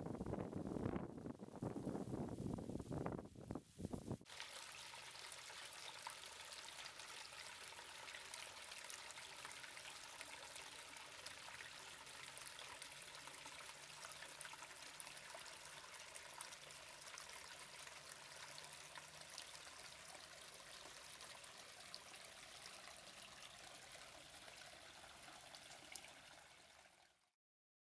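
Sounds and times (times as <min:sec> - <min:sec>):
water trickling over rock: 0:04.2 - 0:27.3.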